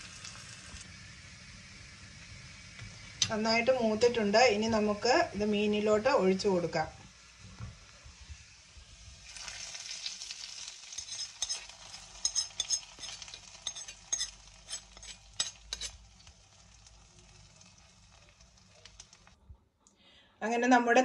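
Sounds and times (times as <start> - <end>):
hot oil sizzling: 0.0 - 19.4
metal spoon scraping and tapping pan: 10.9 - 16.0.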